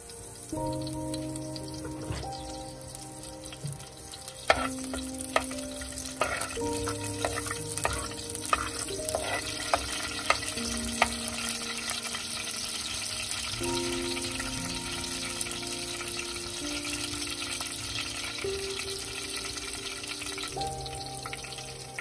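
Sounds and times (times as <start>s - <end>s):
oil sizzling in a pot: 0.0s - 22.0s
metal spoon scraping a pot: 4.5s - 5.0s, 6.2s - 10.5s.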